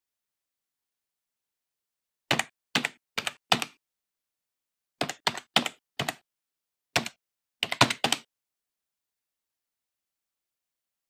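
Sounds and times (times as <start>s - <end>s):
keyboard keystrokes typing: 2.3s - 3.8s, 5.0s - 6.2s, 7.0s - 8.3s.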